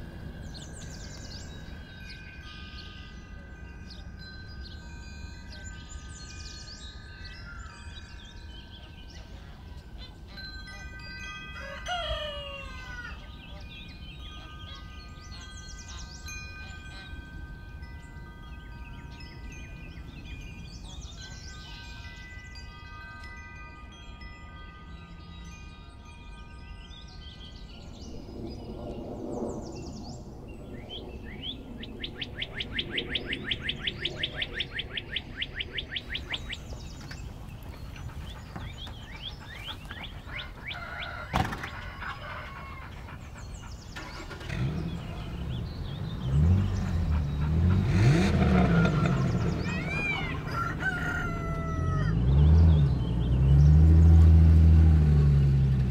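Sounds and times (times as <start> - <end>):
birds singing: 0.0 - 23.4, 26.5 - 55.9
car engine running: 44.0 - 50.5.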